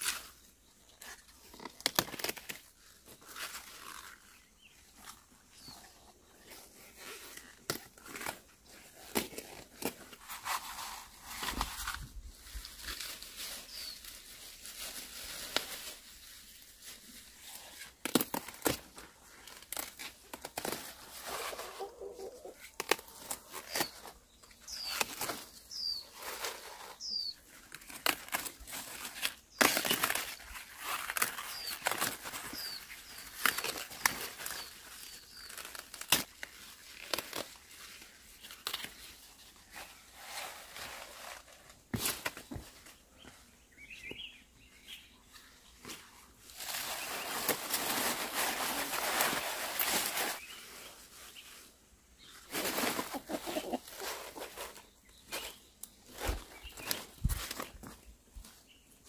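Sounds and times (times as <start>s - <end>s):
leafy greens rustling: 0.0s - 59.0s
stems snapping: 18.0s - 20.9s, 29.2s - 32.2s, 35.5s - 37.6s
bird chirps: 25.7s - 26.1s, 27.0s - 27.4s, 43.6s - 45.4s.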